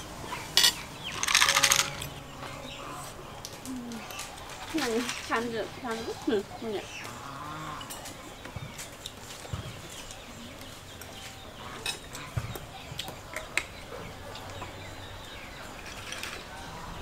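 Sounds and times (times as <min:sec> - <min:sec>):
faint bird calls: 0:00.3 - 0:15.8
glass bottles and dishes clicking: 0:00.6 - 0:02.2.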